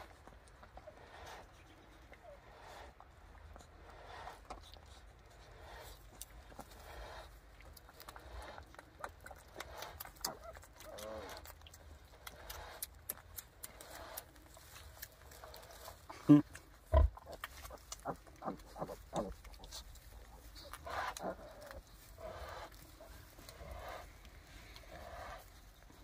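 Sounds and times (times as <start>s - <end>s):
sow grunting: 5.4s - 7.4s, 8.0s - 11.6s, 15.3s - 26.0s.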